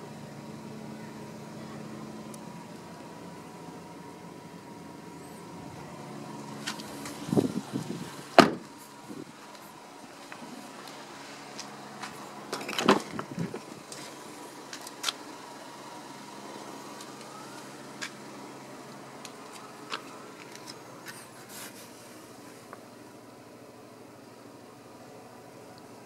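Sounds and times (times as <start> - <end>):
car door clicks and knocks: 8.4 - 8.7.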